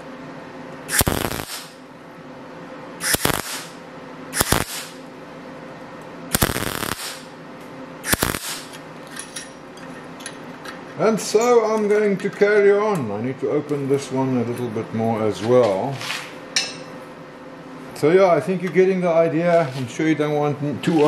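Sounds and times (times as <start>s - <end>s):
welder crackling bursts: 0.9s - 1.8s, 3.0s - 5.0s, 6.3s - 7.4s, 8.0s - 8.7s.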